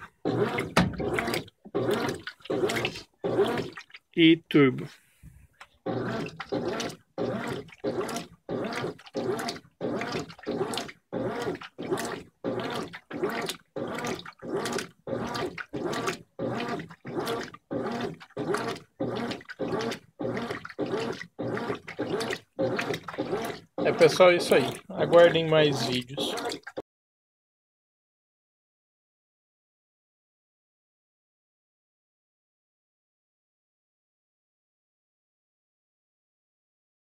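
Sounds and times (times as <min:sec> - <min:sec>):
washing machine agitating: 0:00.0 - 0:26.8
water and wet clothes sloshing: 0:00.0 - 0:26.8.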